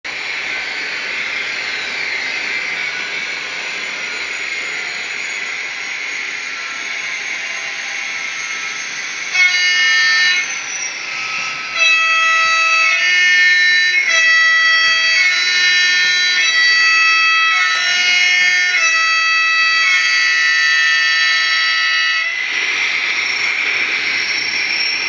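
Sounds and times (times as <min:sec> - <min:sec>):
hissing diesel running sound: 0:00.1 - 0:25.0
two-tone horn note: 0:09.3 - 0:10.6, 0:11.2 - 0:22.4.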